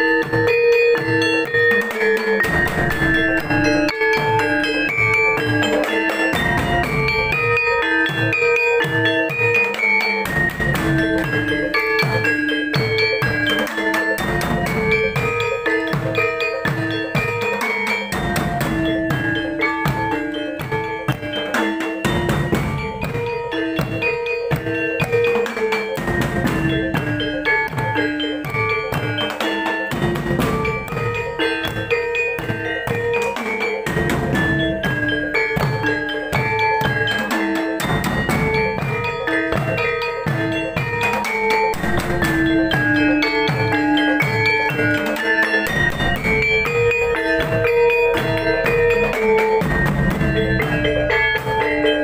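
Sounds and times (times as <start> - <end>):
hand drums: 0.0 - 52.0
metallophones struck with mallets: 0.0 - 52.0
steady held tone: 0.8 - 17.0, 37.9 - 52.0.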